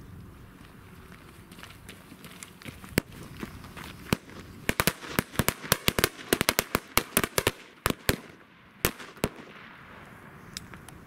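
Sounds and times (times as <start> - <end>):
firecrackers banging: 2.8 - 10.9.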